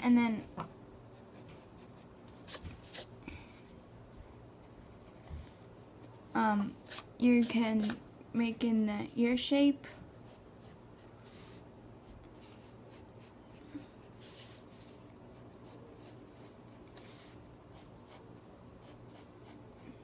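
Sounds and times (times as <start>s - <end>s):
pencil scratching on paper: 1.2s - 3.1s, 12.6s - 20.0s.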